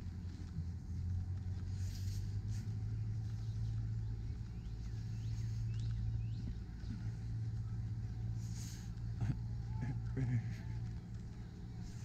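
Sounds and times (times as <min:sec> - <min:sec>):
low rumble: 0:00.0 - 0:12.0
faint bird chirps: 0:03.0 - 0:10.0.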